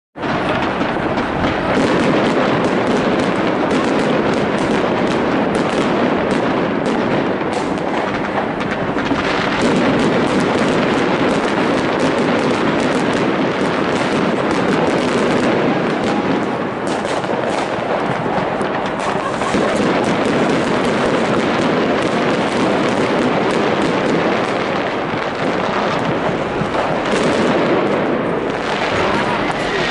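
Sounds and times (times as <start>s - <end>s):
fireworks barrage: 0.2s - 29.9s
rockets bursting: 0.2s - 29.9s.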